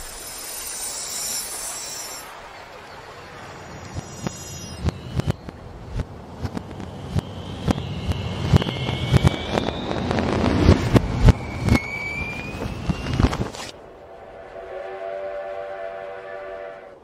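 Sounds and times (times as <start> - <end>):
rushing wash: 0.0 - 17.0
whistling rockets: 3.7 - 5.6, 6.4 - 13.7
fireworks bangs and crackles: 4.8 - 13.7.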